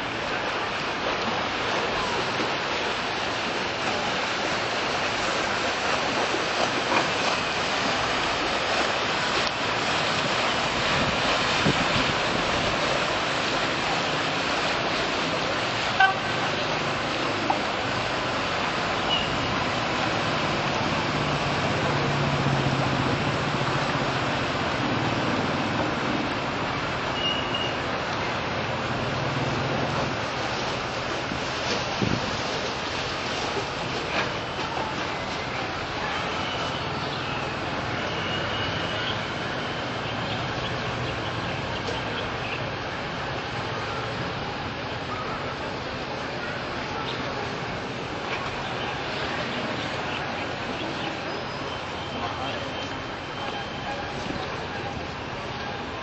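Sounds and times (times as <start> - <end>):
boat engine hum: 0.0 - 56.0
river water rushing: 0.0 - 56.0
wind on microphone: 10.7 - 13.0, 31.3 - 32.6.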